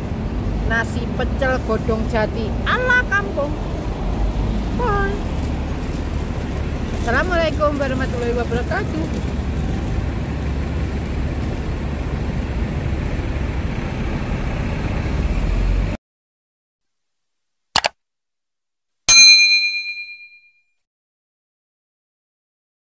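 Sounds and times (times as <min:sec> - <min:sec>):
street traffic rumble: 0:00.0 - 0:16.0
mouse click sound effect: 0:17.8 - 0:18.0
notification bell ding: 0:19.1 - 0:20.6.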